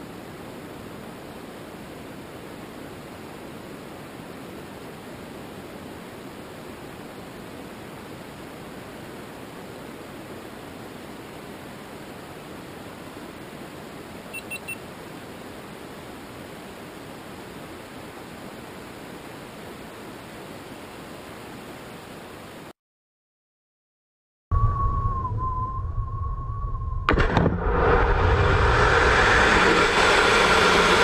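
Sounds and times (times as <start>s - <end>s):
high camera beeps: 14.3s - 14.8s
wind hiss and rush: 27.1s - 31.0s.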